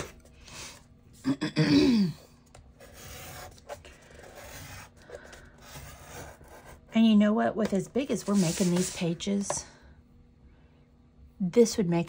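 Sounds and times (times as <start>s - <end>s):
stylus scratching cardstock: 2.8s - 6.8s.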